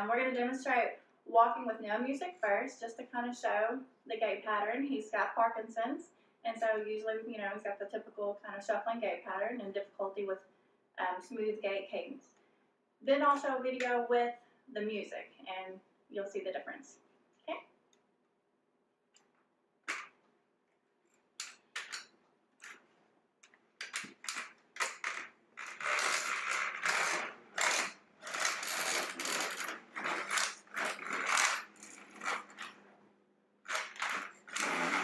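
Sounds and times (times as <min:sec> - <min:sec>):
walker rattling and scraping: 0:23.8 - 0:32.8, 0:33.7 - 0:35.0.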